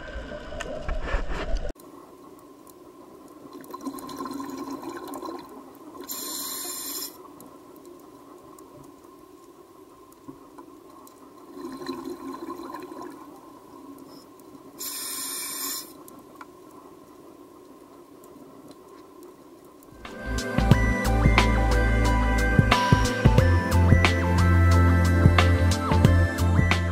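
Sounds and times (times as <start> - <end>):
crackling exhaust bubbles: 0.0 - 20.0
faint steady hum: 0.0 - 26.9
hiss of inhaled air: 6.1 - 7.2, 14.8 - 16.0.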